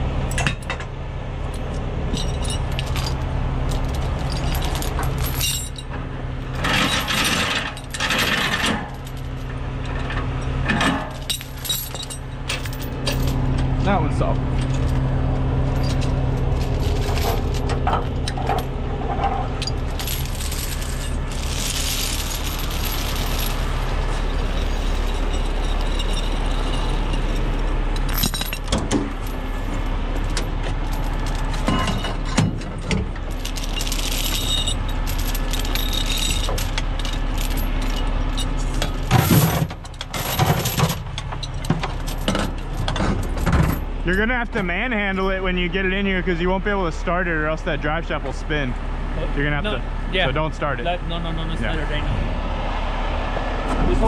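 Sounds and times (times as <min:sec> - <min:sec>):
truck engine idling: 0:00.0 - 0:54.0
steel chains clinking and rattling: 0:01.5 - 0:44.6.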